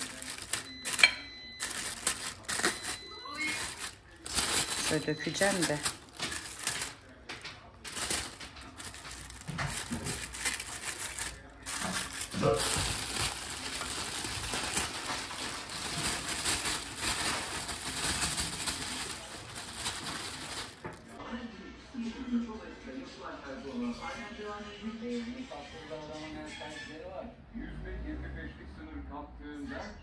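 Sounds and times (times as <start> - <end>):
dense continuous crackle: 0.0 - 7.2, 7.8 - 21.2
plastic bag crinkling: 0.0 - 21.2.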